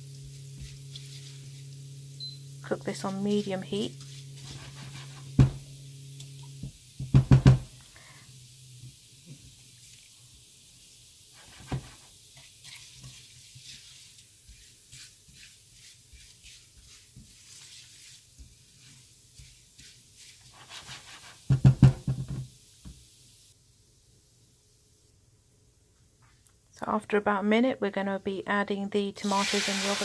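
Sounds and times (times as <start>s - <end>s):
spices sizzling and crackling in oil: 0.0s - 23.6s, 29.2s - 30.0s
spatula knocking and scraping pan: 3.0s - 5.7s, 6.6s - 7.7s, 11.4s - 22.5s.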